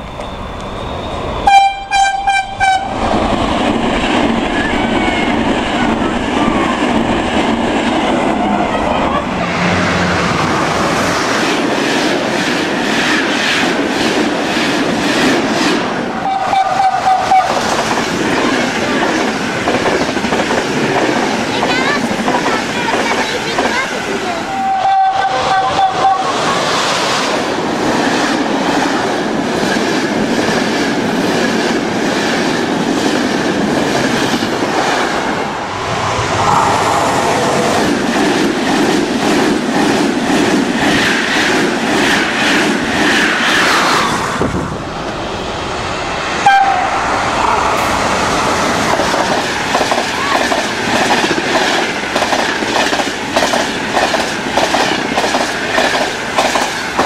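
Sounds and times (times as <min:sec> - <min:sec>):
passenger trains rushing past: 0:00.0 - 0:57.0
falling tone: 0:08.0 - 0:11.6, 0:34.8 - 0:38.4.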